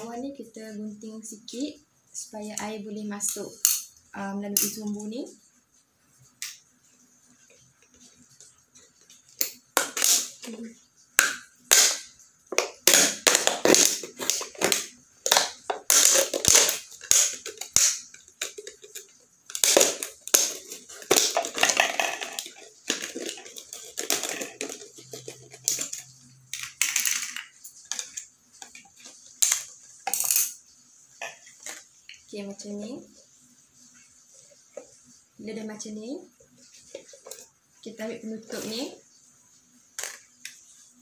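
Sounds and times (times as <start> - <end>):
plastic bottle crackling: 9.4 - 30.2.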